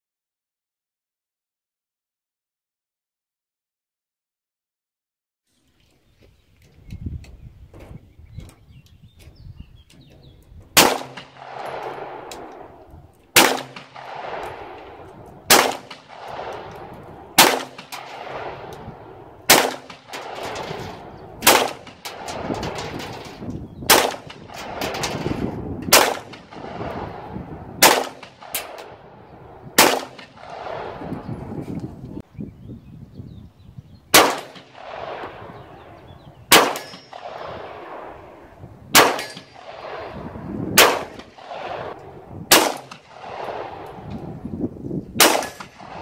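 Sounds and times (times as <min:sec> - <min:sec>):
pistol shots echoing: 0:10.8 - 0:31.2, 0:34.1 - 0:44.2, 0:45.2 - 0:46.0.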